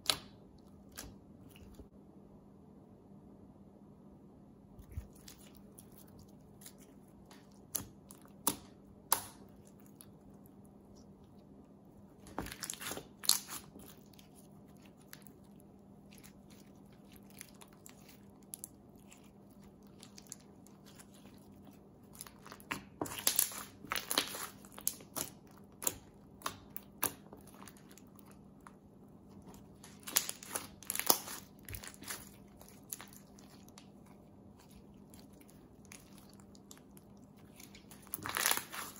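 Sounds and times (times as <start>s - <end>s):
faint low hum: 0.0s - 38.9s
slime popping and crackling: 12.2s - 28.4s, 29.4s - 38.9s.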